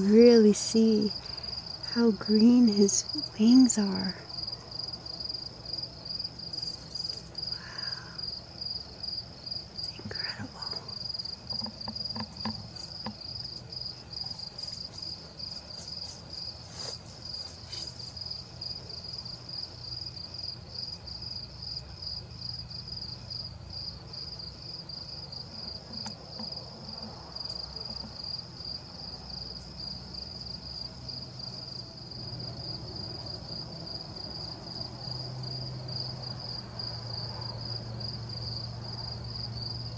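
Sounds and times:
insect trilling: 0:00.0 - 0:31.8
low background hum: 0:00.0 - 0:39.9.

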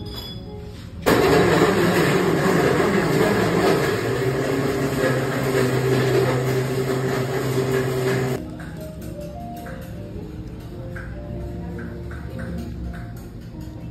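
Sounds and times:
machine running with low hum: 0:01.1 - 0:08.4.

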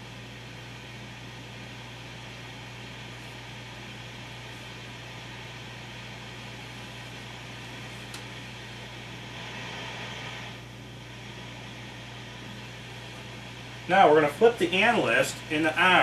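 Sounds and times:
low electrical hum: 0:00.0 - 0:16.0
room noise hiss: 0:00.0 - 0:16.0
faint click: 0:08.0 - 0:08.3.

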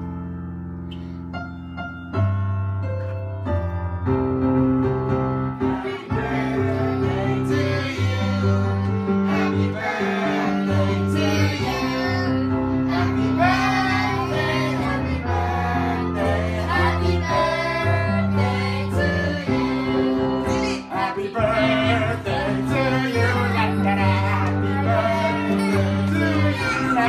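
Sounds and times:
children and adults singing: 0:05.6 - 0:27.0.

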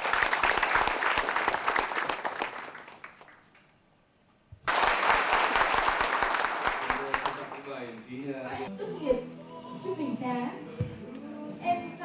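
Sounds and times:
audience applauding: 0:00.0 - 0:03.7, 0:04.6 - 0:08.2.

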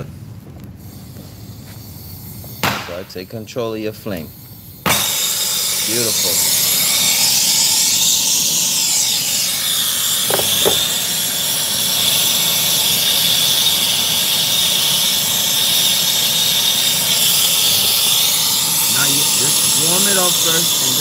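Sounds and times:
brazing torch hissing: 0:00.0 - 0:21.0.

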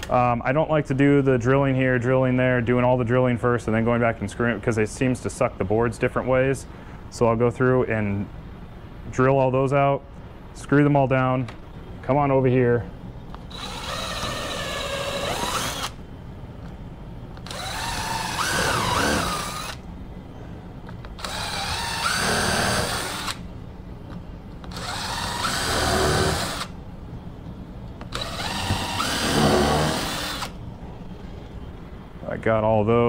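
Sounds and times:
cordless drill boring into wood: 0:13.5 - 0:16.0, 0:17.4 - 0:19.8, 0:21.2 - 0:23.4, 0:24.7 - 0:26.7, 0:28.1 - 0:30.6.

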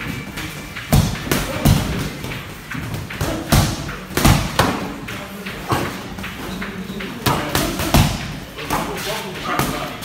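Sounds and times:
boxing gloves punch thuds: 0:00.8 - 0:05.0.

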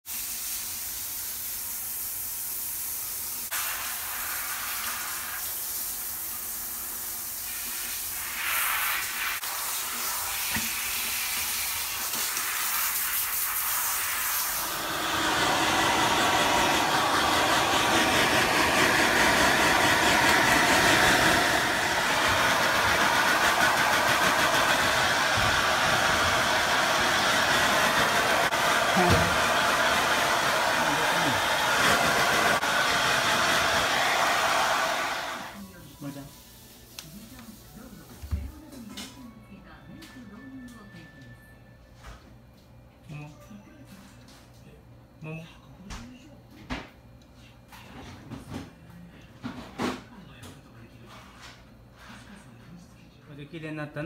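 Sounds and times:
shower spraying water: 0:00.0 - 0:38.0.

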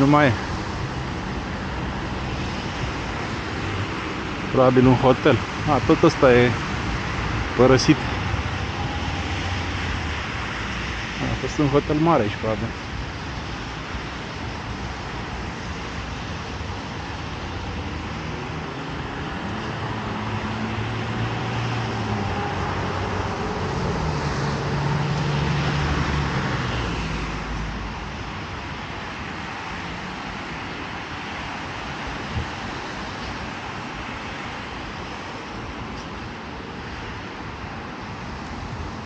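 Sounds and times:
tyres hissing on wet asphalt: 0:00.0 - 0:39.0
vehicle engine passing: 0:01.8 - 0:11.2, 0:17.8 - 0:27.9.

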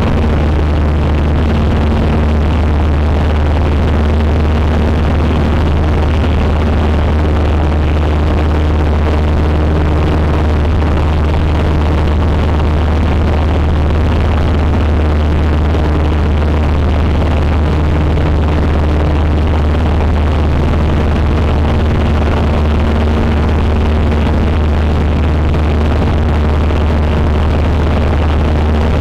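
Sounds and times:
airplane engine and propeller drone: 0:00.0 - 0:29.0.

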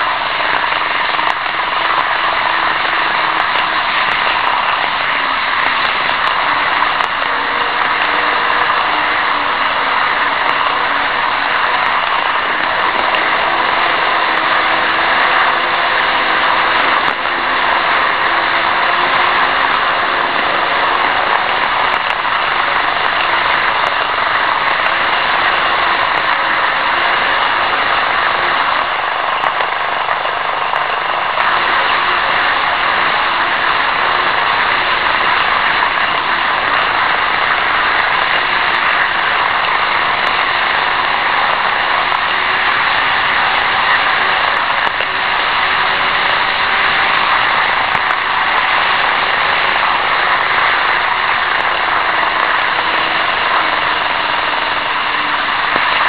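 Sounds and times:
model train wheels whirring on rails: 0:00.0 - 0:56.0.

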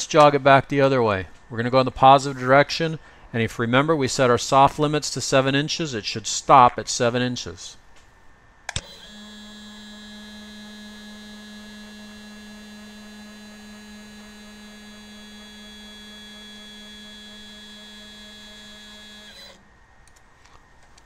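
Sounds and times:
stepper motor humming: 0:08.7 - 0:19.6.

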